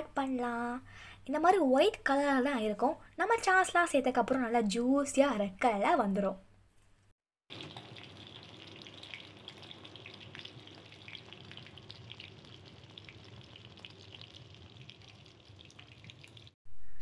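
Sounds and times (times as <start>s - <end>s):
chicken deep-frying in oil: 7.5s - 16.6s.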